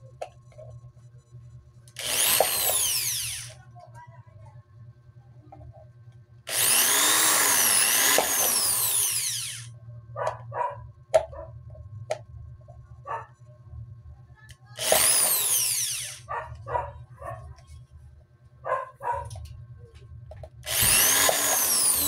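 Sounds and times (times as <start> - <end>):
electric drill whining: 2.0 - 3.6, 6.5 - 9.7, 14.8 - 16.3, 20.6 - 22.0.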